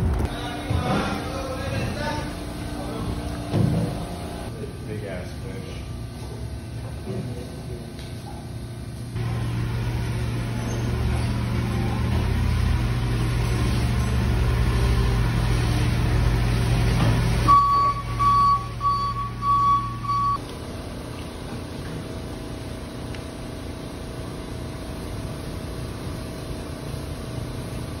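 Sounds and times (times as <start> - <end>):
forklift humming: 0.0 - 4.7, 9.2 - 22.8
steady background noise: 0.0 - 28.0
reversing alarm beeps: 17.4 - 20.4.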